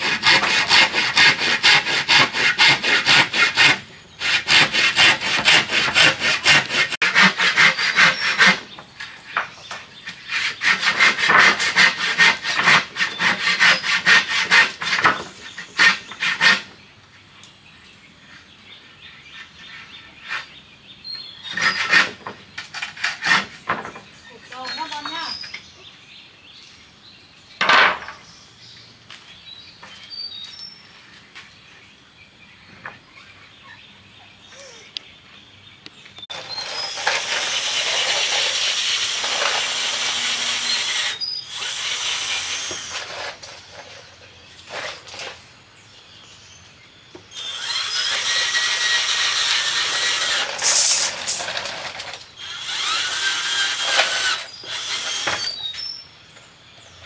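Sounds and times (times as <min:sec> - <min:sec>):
power drill drilling into wood: 0:36.3 - 0:43.4, 0:47.4 - 0:55.6.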